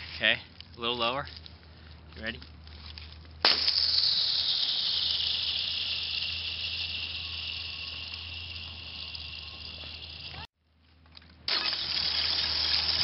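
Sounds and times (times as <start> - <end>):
ice ringing with high whine: 3.5 - 10.5, 11.5 - 13.0.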